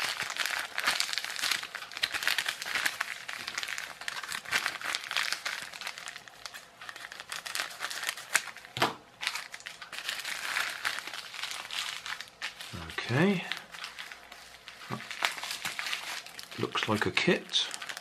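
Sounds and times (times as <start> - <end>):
packet crinkling: 0.0 - 18.0.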